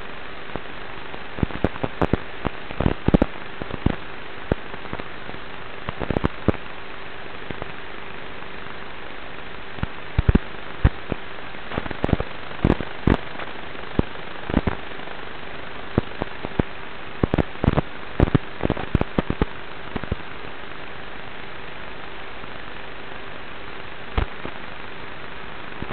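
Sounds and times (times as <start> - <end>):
faint hum: 0.0 - 25.9
steady hiss: 0.0 - 25.9
sharp clicks and pops: 1.4 - 5.1, 5.9 - 6.6, 9.8 - 14.8, 16.0 - 20.2, 24.2 - 24.6.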